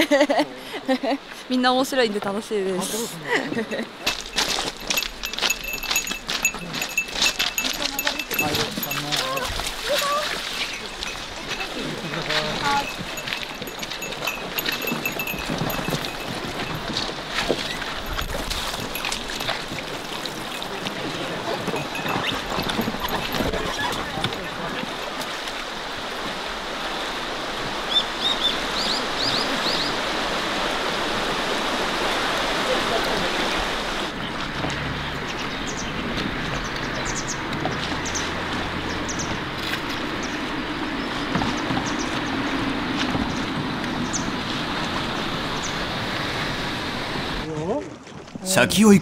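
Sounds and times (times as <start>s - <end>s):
river water rushing: 2.4s - 35.0s.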